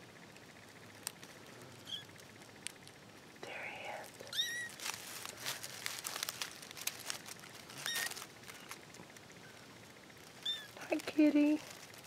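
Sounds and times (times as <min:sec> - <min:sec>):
crackling and rustling in woodpile: 0:00.3 - 0:12.0
kitten squeaking: 0:01.8 - 0:02.1, 0:04.3 - 0:04.8, 0:07.7 - 0:08.8, 0:10.4 - 0:10.8.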